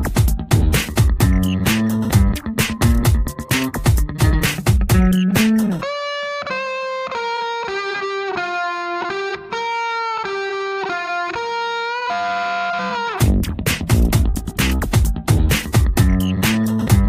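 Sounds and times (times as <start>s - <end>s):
busy drum beat: 0.0s - 5.8s, 13.2s - 17.0s
held electric guitar notes: 0.0s - 17.0s.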